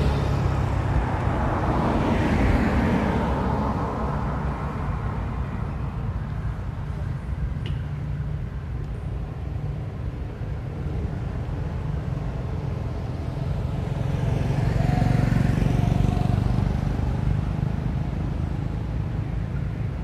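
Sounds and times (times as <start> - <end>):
vehicle passing by: 0.0 - 5.4, 11.1 - 19.5
road traffic rumble: 0.0 - 20.0.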